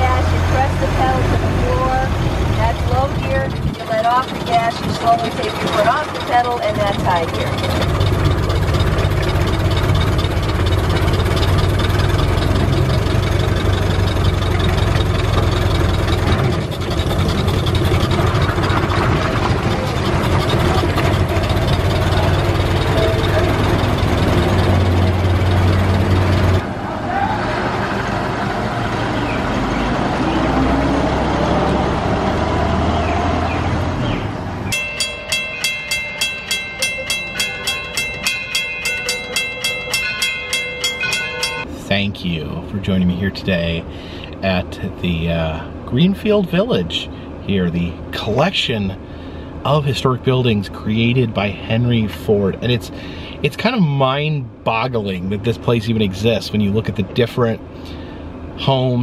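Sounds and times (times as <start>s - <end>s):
car engine droning: 0.0s - 59.0s
bell ringing: 34.7s - 41.8s.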